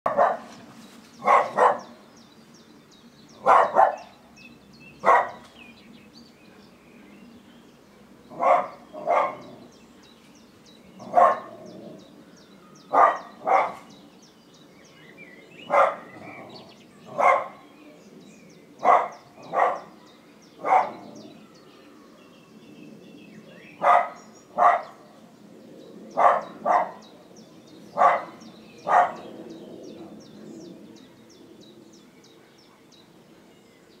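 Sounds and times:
dog barking: 0.1 - 0.5, 1.2 - 2.0, 3.4 - 4.1, 5.0 - 5.5, 8.4 - 9.5, 11.0 - 11.6, 12.9 - 13.9, 15.7 - 16.1, 17.1 - 17.6, 18.8 - 19.9, 20.6 - 21.1, 23.8 - 25.0, 26.2 - 27.0, 28.0 - 29.3.

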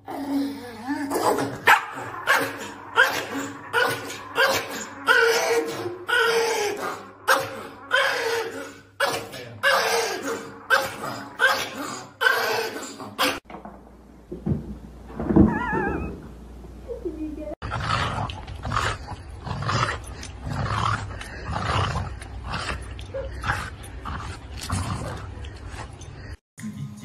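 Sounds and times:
small dog barking: 1.7 - 3.1.

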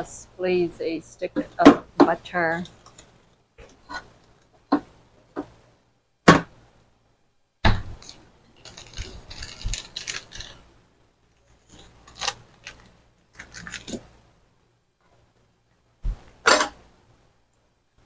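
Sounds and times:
rustling: 7.9 - 14.3.

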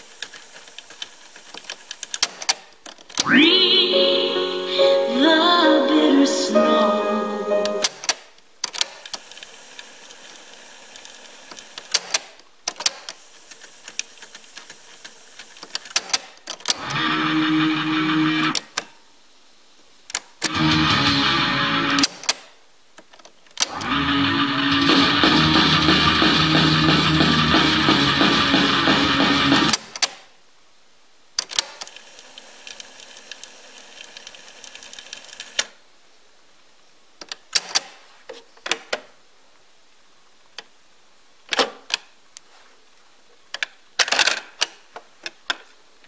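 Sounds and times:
guitar music from tape: 3.2 - 7.9, 16.8 - 18.5, 20.5 - 22.0, 23.8 - 29.7.

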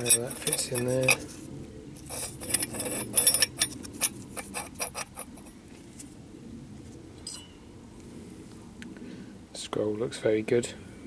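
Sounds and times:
metal parts clinking and knocking: 0.0 - 1.3, 2.0 - 5.3.

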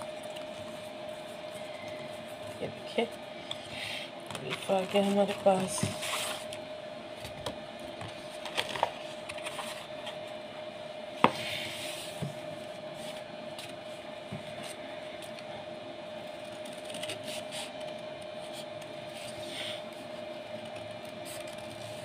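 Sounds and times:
steady hum: 0.0 - 22.0
paper rustling: 8.3 - 10.2.

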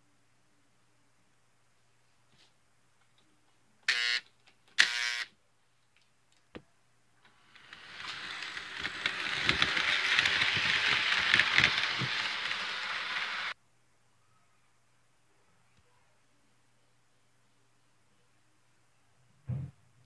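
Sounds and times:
model train wheels clicking on track: 7.2 - 13.6.

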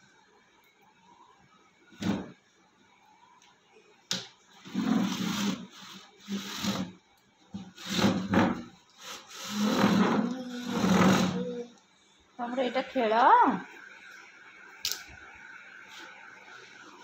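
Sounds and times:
chair scraping across stone floor: 4.6 - 6.9, 7.6 - 8.7, 9.4 - 11.4.

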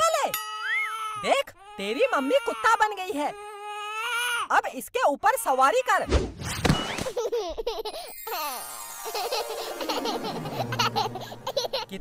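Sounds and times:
baby laughing: 7.0 - 12.0.

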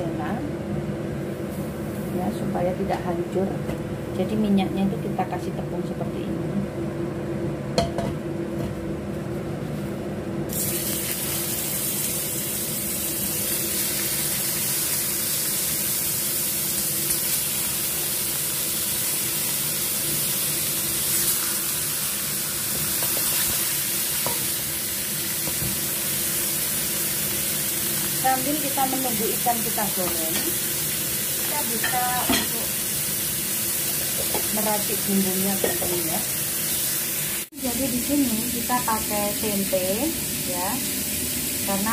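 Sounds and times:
fish sizzling in hot oil: 10.5 - 41.9.

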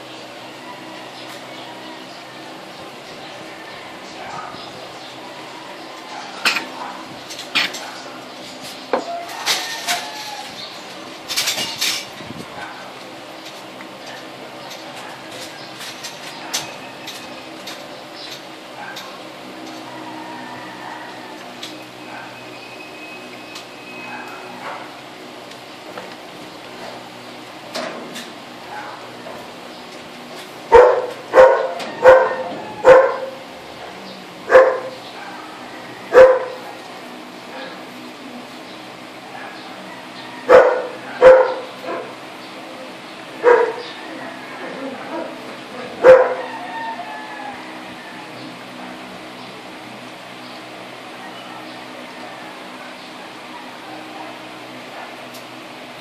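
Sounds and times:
dog barking: 6.1 - 7.1, 18.8 - 19.1, 22.0 - 22.4, 24.1 - 25.0, 28.7 - 29.0, 30.7 - 33.4, 34.5 - 36.7, 39.3 - 39.7, 40.5 - 42.2, 43.4 - 43.8, 45.0 - 46.6.

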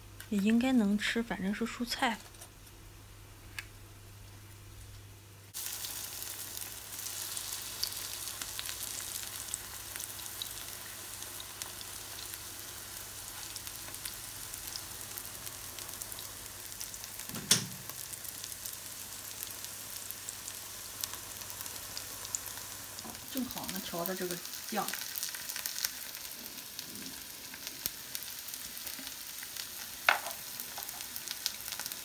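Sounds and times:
batter sizzling in hot oil: 5.5 - 32.0
oil pops and crackles: 30.0 - 31.6.

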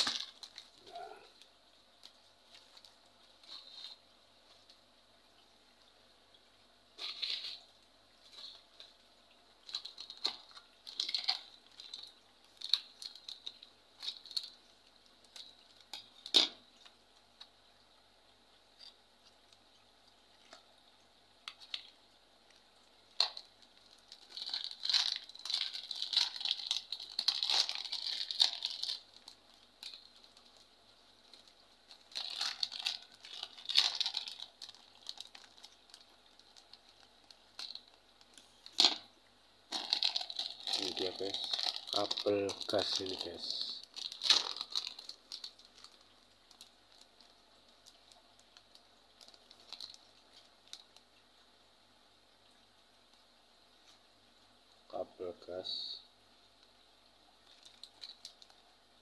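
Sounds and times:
packaging crinkling: 0.0 - 4.8, 7.0 - 17.5, 21.4 - 39.1, 39.7 - 51.1, 57.4 - 58.7.

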